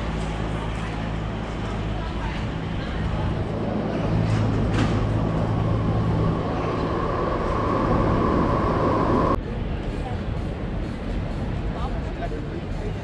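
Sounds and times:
electric train rumbling: 0:00.0 - 0:13.0
high steady whine: 0:03.3 - 0:09.4.

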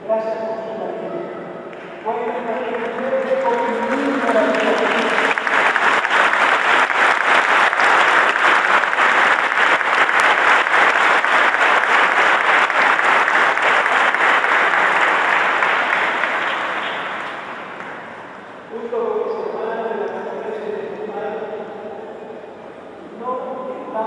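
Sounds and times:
crowd applauding: 0:01.8 - 0:18.5.

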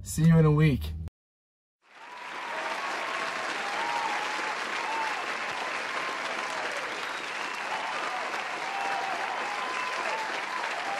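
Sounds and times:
crowd applauding: 0:01.8 - 0:10.9.

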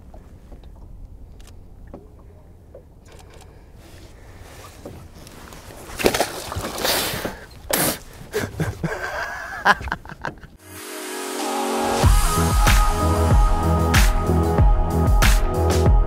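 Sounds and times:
background music: 0:10.6 - 0:16.0.

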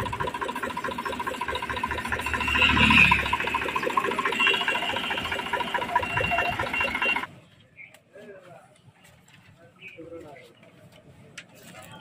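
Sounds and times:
even mechanical beat: 0:00.0 - 0:07.3.

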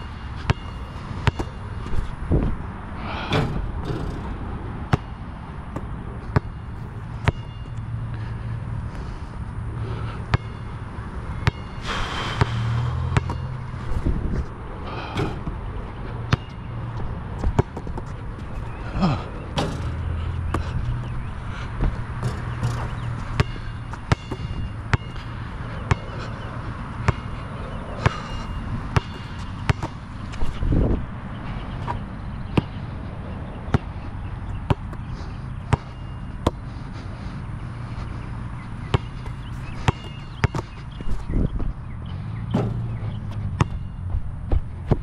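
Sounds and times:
steady low rumble: 0:00.0 - 0:45.0
basketball bouncing on court: 0:00.4 - 0:01.9, 0:03.3 - 0:07.6, 0:10.3 - 0:10.7, 0:11.3 - 0:14.1, 0:15.1 - 0:30.6, 0:31.8 - 0:32.8, 0:33.6 - 0:36.7, 0:38.6 - 0:45.0.

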